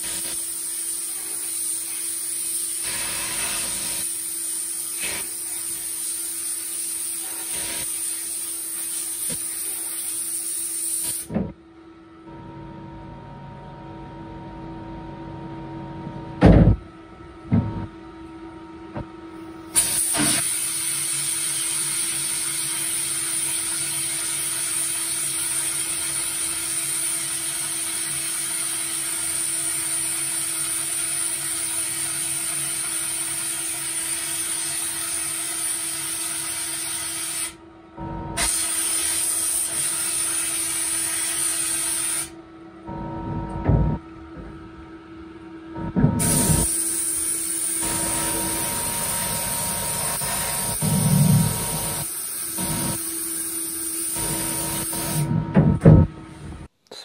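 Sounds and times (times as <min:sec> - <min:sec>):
air spray gun hissing: 0:00.0 - 0:11.3, 0:19.7 - 0:37.6, 0:38.4 - 0:42.4, 0:46.2 - 0:55.3.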